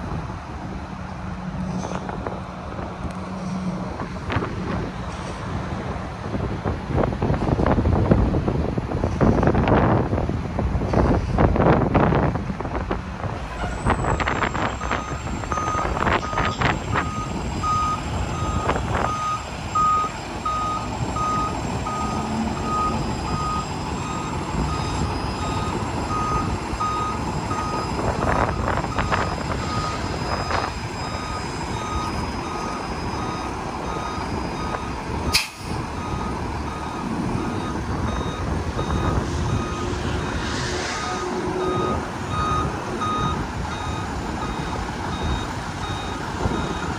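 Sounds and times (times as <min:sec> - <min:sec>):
diesel engine running: 0:00.0 - 0:46.9
backup alarm beeping: 0:36.0 - 0:39.9, 0:41.6 - 0:46.9.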